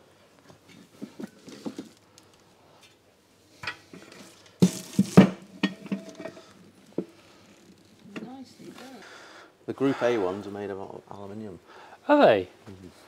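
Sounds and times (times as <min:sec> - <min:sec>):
steel clanking: 0:04.6 - 0:06.5.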